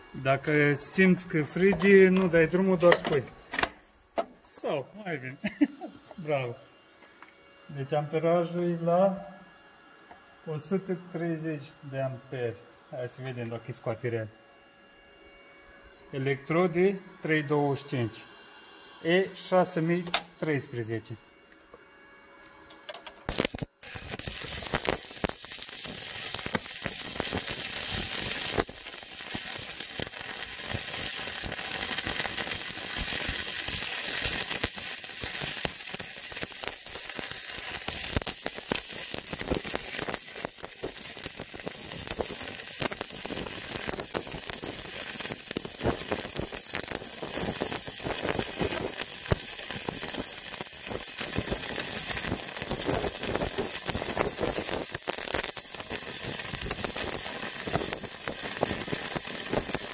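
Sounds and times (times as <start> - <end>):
welding arc crackling: 0.0 - 6.6, 22.6 - 59.9.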